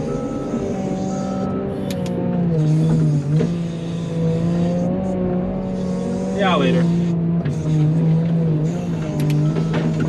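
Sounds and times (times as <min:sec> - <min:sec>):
reversing alarm beep: 0:00.0 - 0:02.9, 0:09.3 - 0:10.0
diesel engine running: 0:00.0 - 0:10.0.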